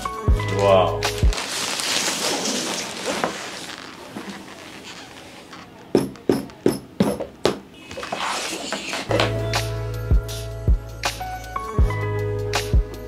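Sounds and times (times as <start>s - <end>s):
polythene bag rustling: 1.2s - 5.7s.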